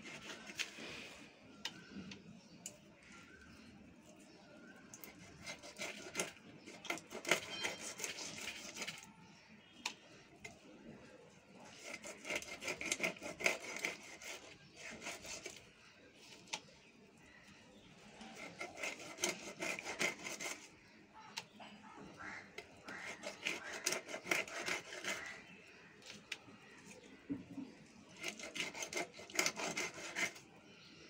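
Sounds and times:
fish sawn on blade: 4.6 - 10.4, 11.5 - 17.4, 18.1 - 21.4, 22.2 - 27.0, 28.0 - 30.6.

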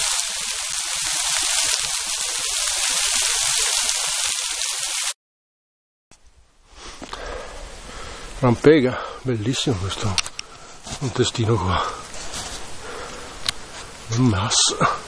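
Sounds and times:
small waterfall splashing on rock: 0.0 - 5.2.

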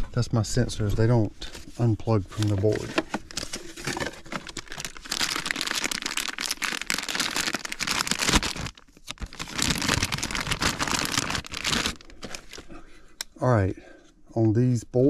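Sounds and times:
plastic bag crinkling: 2.3 - 12.8.

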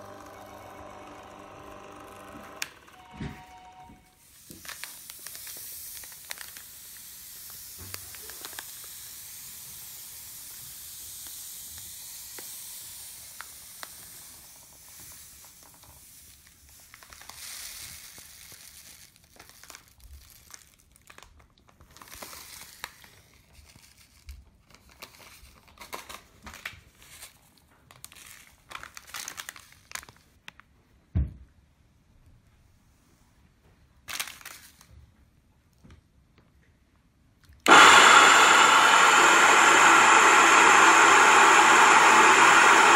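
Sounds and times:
plastic bag crinkling: 4.2 - 9.1, 15.5 - 30.6
grain pouring hiss: 4.2 - 19.5, 37.7 - 42.9
thump: 31.1 - 31.5.

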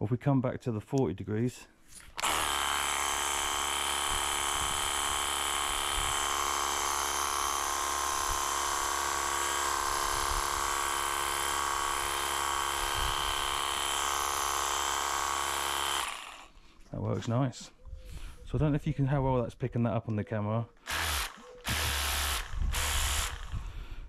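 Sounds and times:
pressure washer pump buzzing: 2.2 - 16.5, 20.8 - 23.6.

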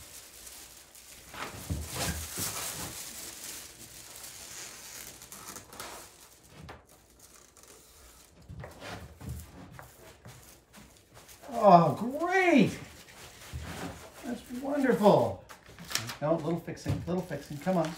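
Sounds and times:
mylar film crinkling: 0.0 - 8.5, 17.2 - 17.9.

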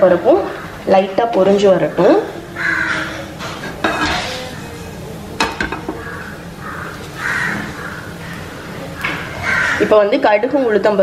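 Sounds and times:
person calling: 2.3 - 6.6.

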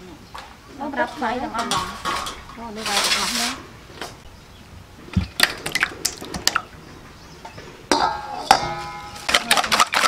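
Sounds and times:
eggs clinking into steel bowl: 7.9 - 10.0.

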